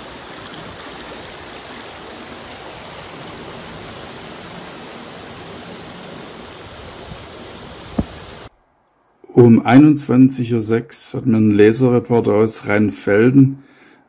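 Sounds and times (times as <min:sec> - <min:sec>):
floodwater rushing: 0:00.0 - 0:08.5.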